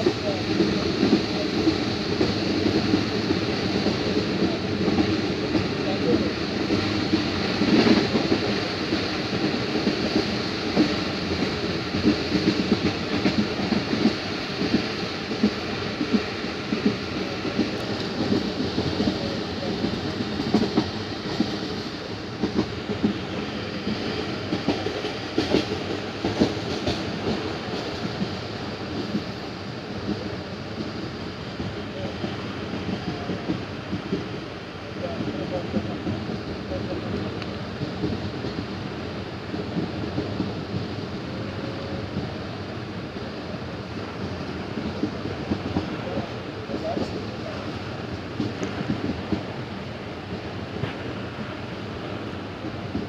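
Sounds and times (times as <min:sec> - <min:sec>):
clacks and knocks: 0:00.0 - 0:29.4
train wheels rumbling on rails: 0:00.0 - 0:53.0.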